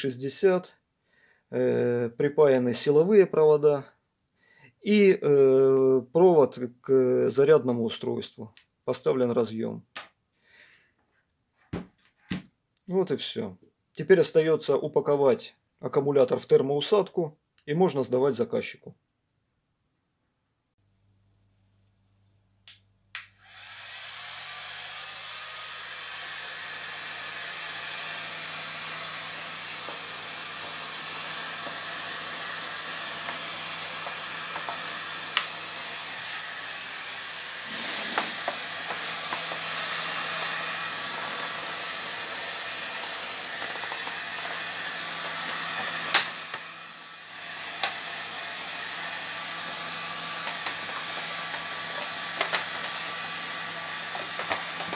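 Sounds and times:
heat gun blowing air: 23.2 - 54.9.

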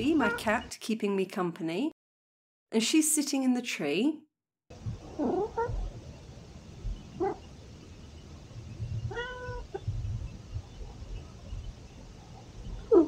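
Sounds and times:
cat meowing: 9.1 - 9.8.

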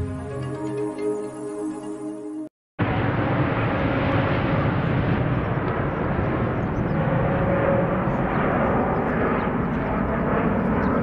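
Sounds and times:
fighter jets roaring overhead: 2.8 - 11.0.

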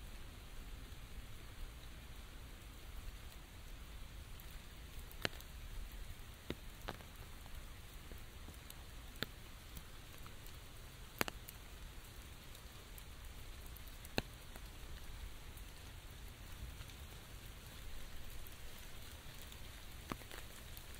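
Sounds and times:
rain on umbrella and foliage: 0.0 - 20.9.

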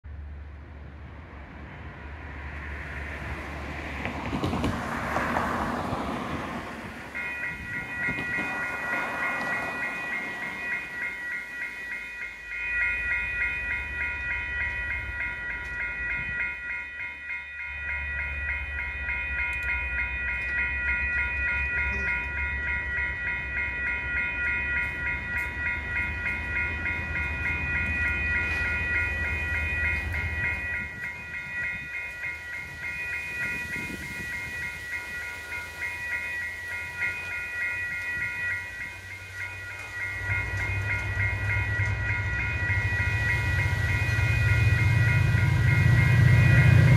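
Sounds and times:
level crossing bell ringing: 5.0 - 46.9.

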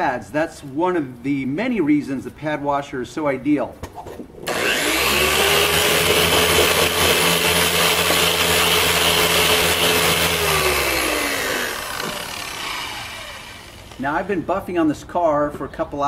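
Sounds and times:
electric polisher motor running: 4.5 - 14.0.

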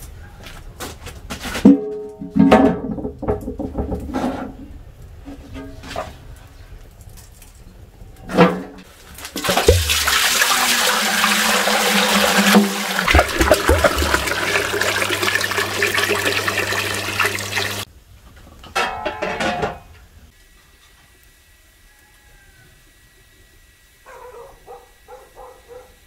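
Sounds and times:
water pouring into metal pot: 9.2 - 17.9
clunk: 18.6 - 19.9.

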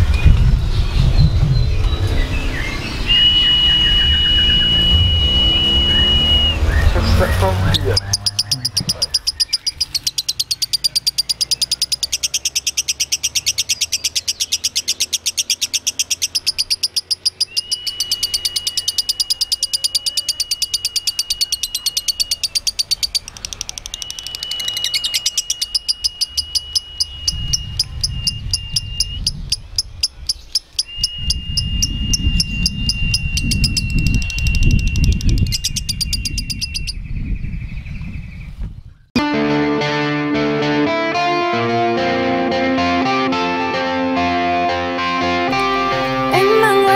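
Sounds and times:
low rumble: 0.0 - 10.0
steady high tone: 2.5 - 9.5, 39.2 - 46.9
lovebird chattering trill: 6.8 - 37.2.

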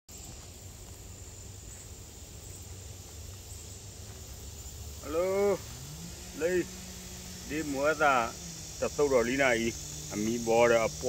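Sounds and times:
insects buzzing: 0.1 - 11.0
person calling out: 5.0 - 5.7.

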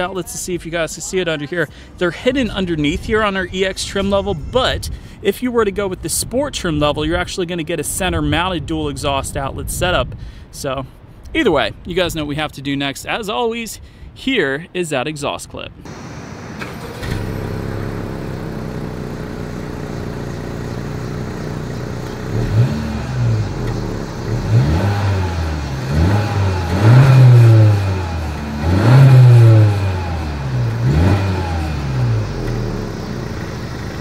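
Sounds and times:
car exhaust idling and revving: 15.9 - 34.0.

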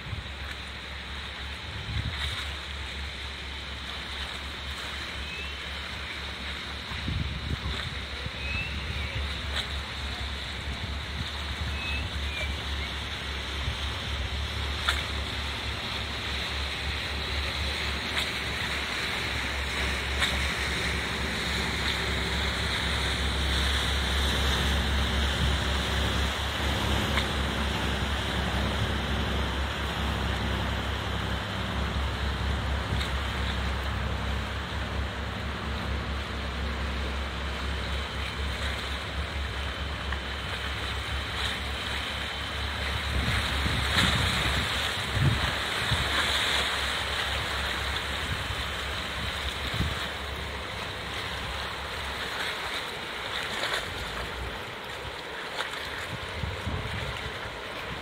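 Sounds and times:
low boat engine hum: 0.0 - 58.0
waves washing against concrete: 0.0 - 58.0
wind buffeting microphone: 6.7 - 11.8, 42.4 - 46.4, 56.0 - 58.0.

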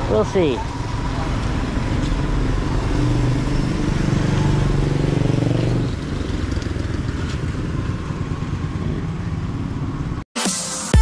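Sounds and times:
low street noise: 0.0 - 10.2
motorcycle tricycle engine running: 0.0 - 10.2.

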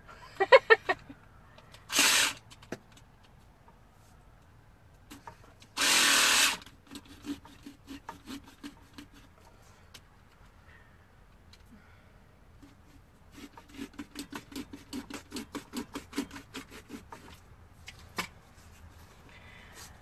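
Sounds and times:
carving saw running: 1.9 - 2.4, 5.8 - 8.6.

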